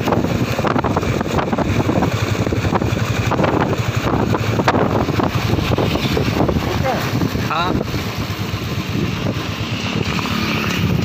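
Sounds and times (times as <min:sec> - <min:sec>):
motorbike engine and road noise: 0:00.0 - 0:11.0
wind buffeting microphone: 0:00.0 - 0:11.0.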